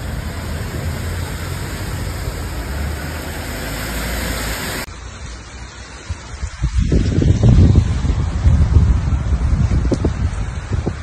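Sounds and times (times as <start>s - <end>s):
water churning and splashing: 0.0s - 8.4s
car engines: 0.0s - 11.0s.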